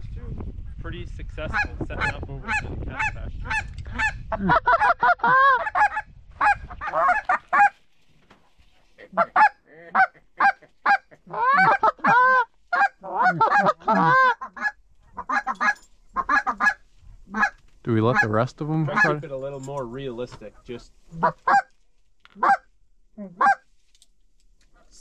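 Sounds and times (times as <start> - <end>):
geese honking and clucking: 1.4 - 7.9, 9.0 - 19.2, 20.5 - 22.7, 23.3 - 23.6.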